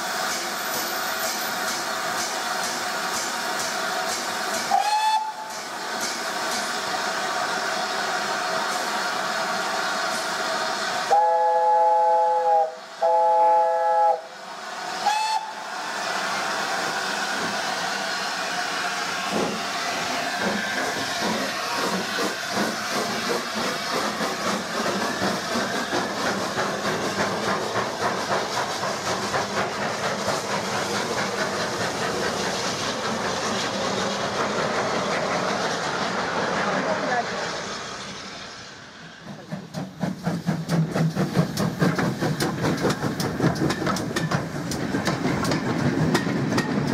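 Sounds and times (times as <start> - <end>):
steam hissing: 0.0 - 46.9
steam locomotive exhaust beats: 0.0 - 46.9
steam locomotive chime whistle: 4.7 - 5.6, 11.1 - 14.3, 15.0 - 15.6.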